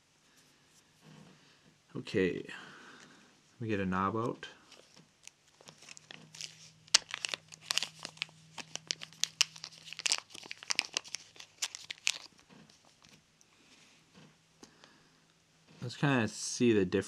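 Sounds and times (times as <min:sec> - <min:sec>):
plastic bag crinkling: 0:04.6 - 0:13.2.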